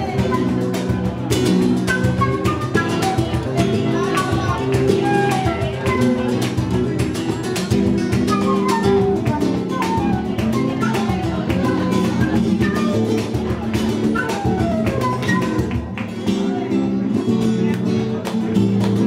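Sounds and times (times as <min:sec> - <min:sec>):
flute: 0:00.0 - 0:07.0, 0:07.9 - 0:16.0
cajon strikes: 0:00.0 - 0:16.5
flamenco guitars: 0:00.0 - 0:19.0.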